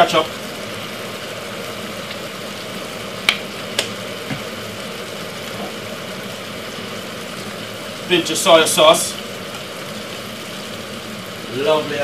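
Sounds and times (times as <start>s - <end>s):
stew sizzling and bubbling: 0.0s - 12.0s
sharp clicks on pot: 3.2s - 4.4s.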